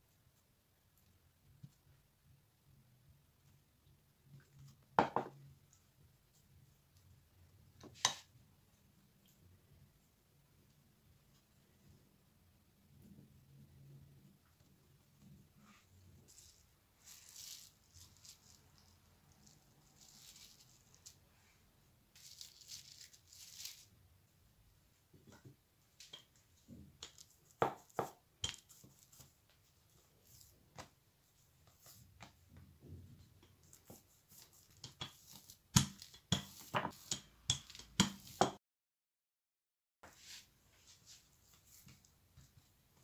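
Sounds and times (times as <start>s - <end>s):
rolling pin knocking on wooden table: 5.0s - 5.4s, 27.6s - 28.2s
plastic wrap crinkling: 16.3s - 21.2s, 22.1s - 24.0s.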